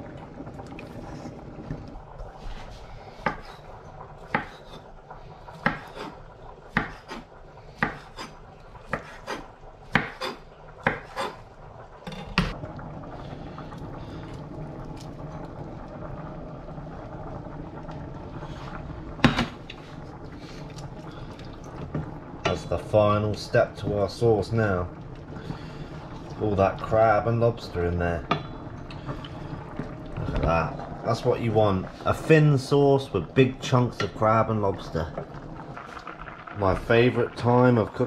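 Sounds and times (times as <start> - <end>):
knife chopping on wooden board: 4.3 - 4.6, 5.6 - 6.0, 6.7 - 7.1, 7.8 - 8.1, 9.9 - 10.3.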